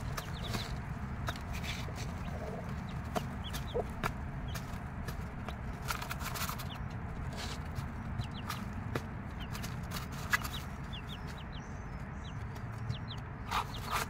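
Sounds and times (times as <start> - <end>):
chicks peeping: 0.0 - 14.0
hen clucking softly: 1.8 - 4.0.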